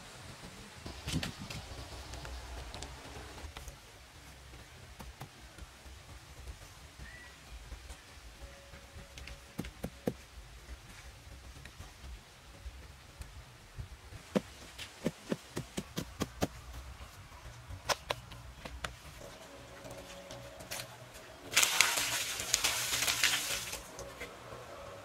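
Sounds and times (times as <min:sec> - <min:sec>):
water splashing on concrete: 0:21.5 - 0:24.0.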